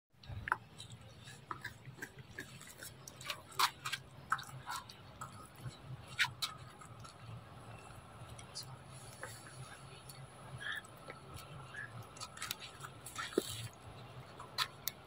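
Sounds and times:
monkey chewing wet smacking: 0.2 - 7.3
faint low hum: 0.2 - 15.0.

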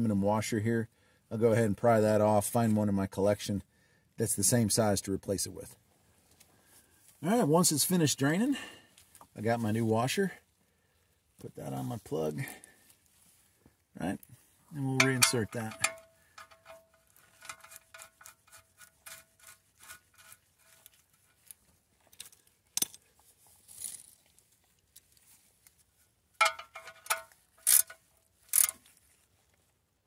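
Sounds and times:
ringing metallic wrench clicks: 26.4 - 28.8.

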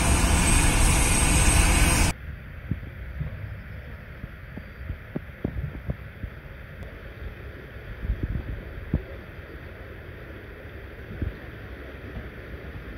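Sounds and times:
wind rumbling on microphone: 0.0 - 12.9.

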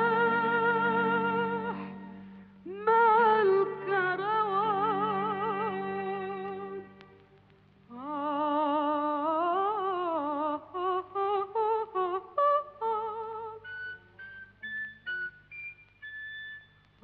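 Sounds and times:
woman singing soprano: 0.0 - 7.0, 7.9 - 14.1.

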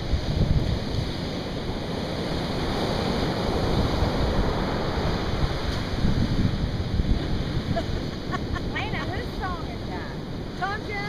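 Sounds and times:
ocean surf breaking: 0.0 - 11.0
wind on microphone: 0.0 - 11.0.

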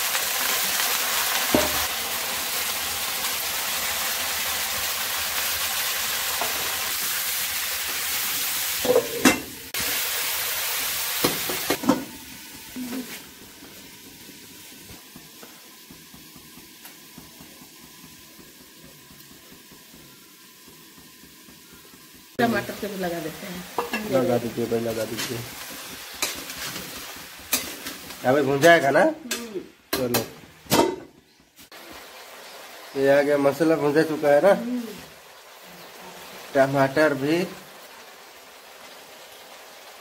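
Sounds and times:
vegetables sizzling in hot oil: 0.0 - 40.0
spoon clinking and scraping pan: 23.8 - 24.2, 26.1 - 29.4.

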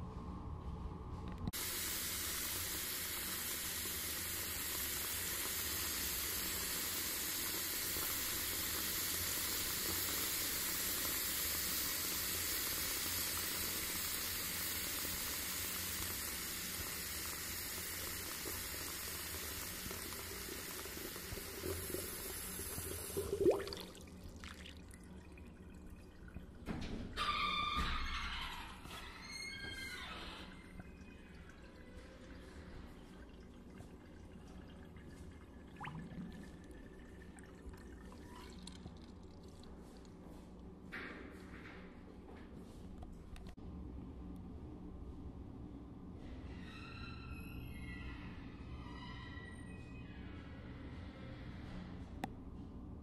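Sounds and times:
steady rushing hiss: 1.6 - 23.0
short rising squeak: 27.2 - 30.7, 46.5 - 50.7.

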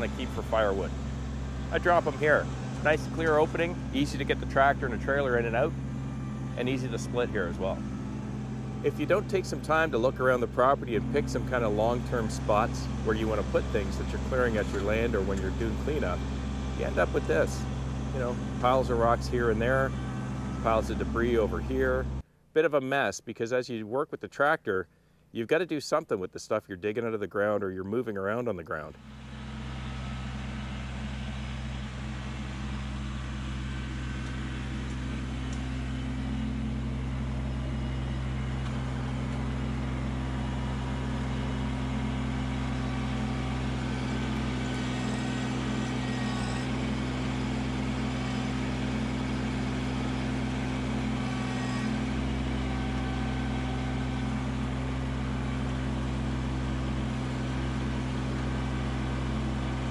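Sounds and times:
tractor diesel engine running: 0.0 - 22.3, 28.8 - 59.9.

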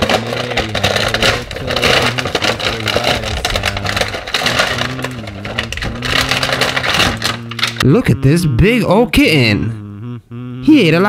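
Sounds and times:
plastic candy wrapper crackling: 0.0 - 7.9.

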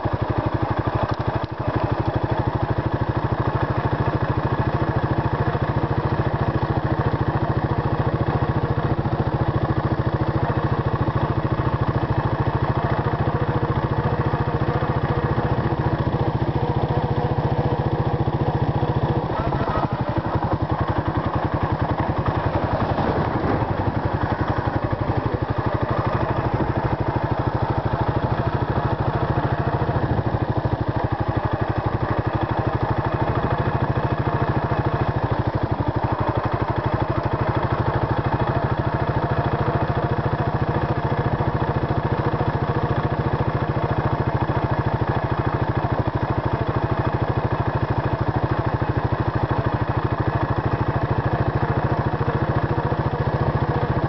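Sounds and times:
motorcycle engine thumping: 8.2 - 39.1.

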